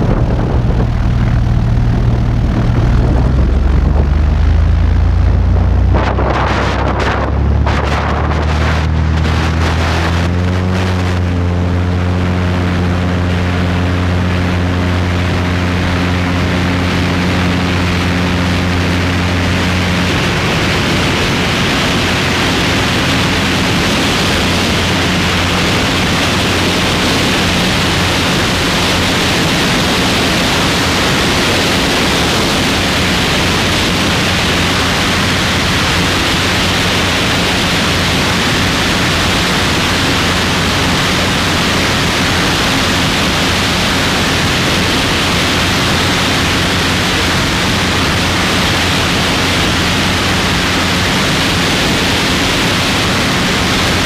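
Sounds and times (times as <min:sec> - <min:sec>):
wind rushing: 0:00.0 - 0:11.2
plane engine and propeller drone: 0:00.0 - 0:54.0.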